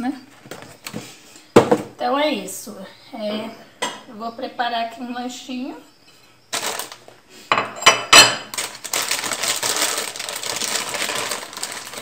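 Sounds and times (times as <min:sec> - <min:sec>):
plastic bag rustling: 0:06.5 - 0:07.2, 0:08.2 - 0:12.0.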